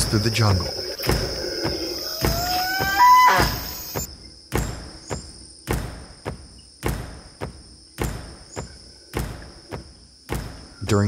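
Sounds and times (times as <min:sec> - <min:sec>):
insects droning: 0:00.0 - 0:11.0
regular sharp thuds: 0:00.0 - 0:11.0.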